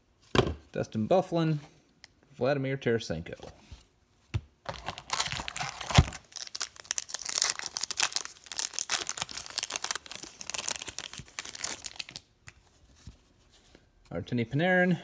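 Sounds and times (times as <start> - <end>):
foil wrapper tearing and crinkling: 4.7 - 12.3.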